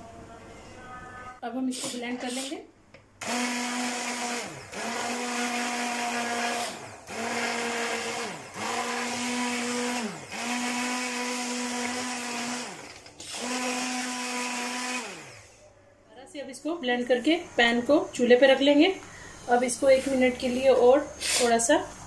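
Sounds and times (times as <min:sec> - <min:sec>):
electric blender motor whine: 0:03.2 - 0:15.6.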